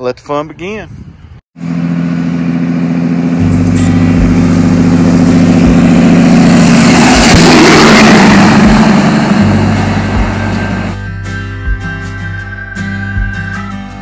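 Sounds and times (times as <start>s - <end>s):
road noise: 0.0s - 14.0s
truck diesel engine passing: 1.6s - 11.1s.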